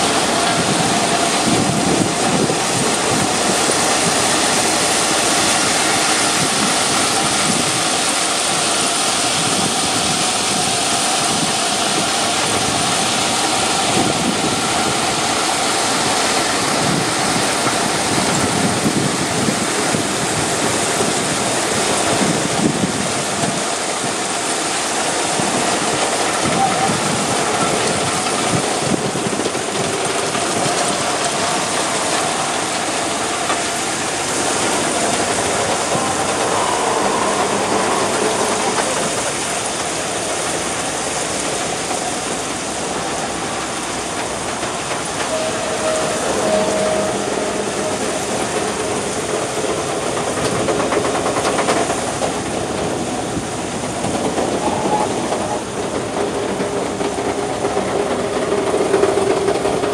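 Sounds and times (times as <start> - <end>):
train wheels rushing on rails: 0.0 - 59.9
thin wheel squeals: 34.5 - 39.9, 45.2 - 50.0, 54.5 - 55.7.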